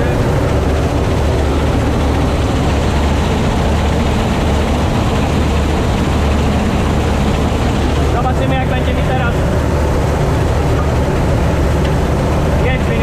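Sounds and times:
combine harvester engine hum: 0.0s - 13.0s
rattle of threshing machinery: 0.0s - 13.0s.

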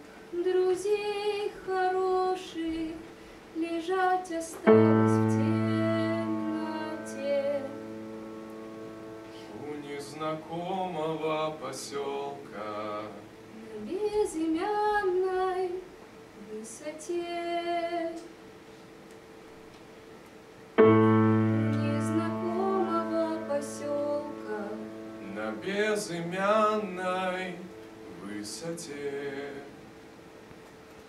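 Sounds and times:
person singing unaccompanied: 3.6s - 18.3s, 20.8s - 29.9s
piano chord: 4.6s - 11.7s, 20.8s - 29.9s.

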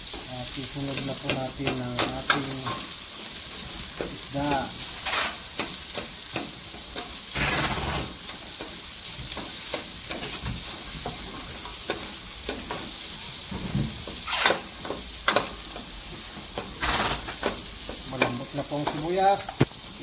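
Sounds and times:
vegetables sizzling in a pot: 0.0s - 20.0s.

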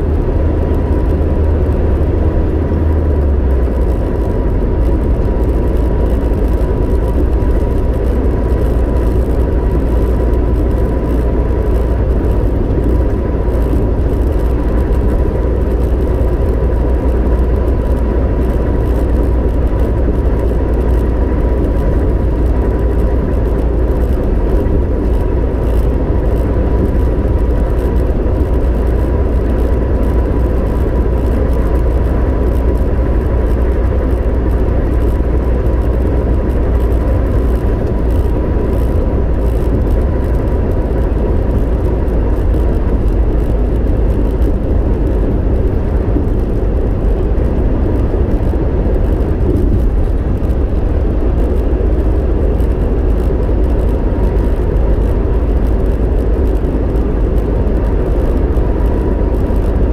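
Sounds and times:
van engine and running rumble: 0.0s - 59.9s.

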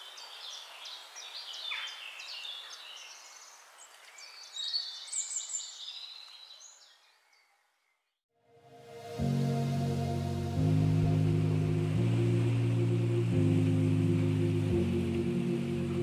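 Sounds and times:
birds chirping and singing: 0.1s - 7.5s.

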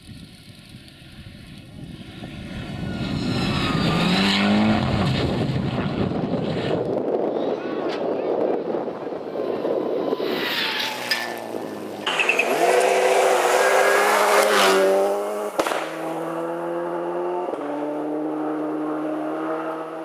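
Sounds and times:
rally car engine revving: 2.2s - 6.9s, 9.2s - 20.0s
gravel spray: 10.2s - 16.2s.

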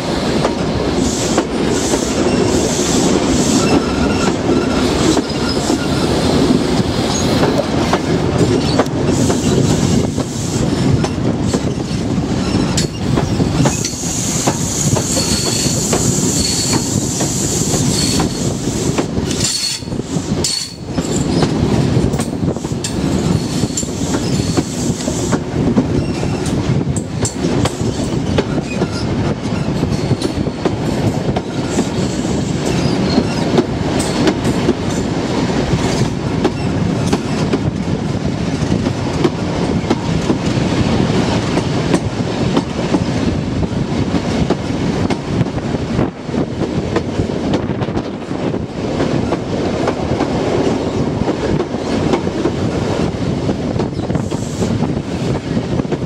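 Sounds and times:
train wheels rumbling on rails: 0.0s - 56.0s
high wheel squeal: 1.0s - 6.2s, 13.7s - 18.5s.

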